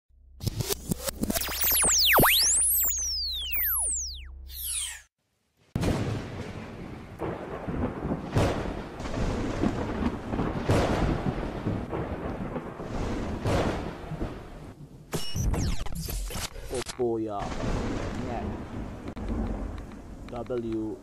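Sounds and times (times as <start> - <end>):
sharp thunder cracks: 5.8 - 15.2, 17.3 - 21.0
thunder rumble: 5.8 - 15.2, 17.3 - 21.0.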